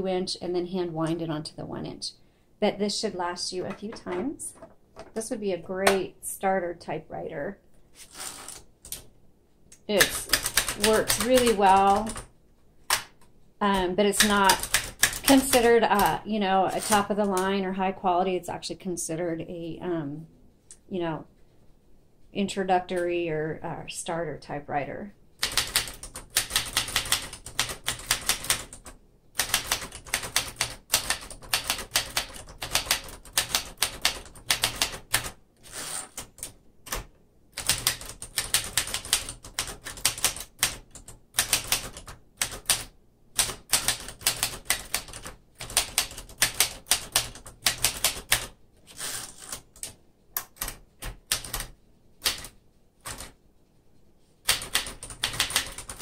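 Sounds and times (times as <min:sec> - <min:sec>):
typewriter keystroke clacks: 0:10.0 - 0:12.3, 0:25.4 - 0:35.3, 0:36.2 - 0:48.5, 0:49.4 - 0:53.4, 0:54.4 - 0:56.0.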